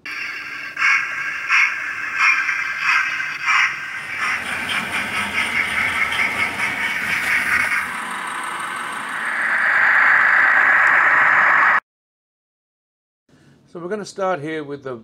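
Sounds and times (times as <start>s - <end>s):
model train motors whirring: 0.0s - 11.1s.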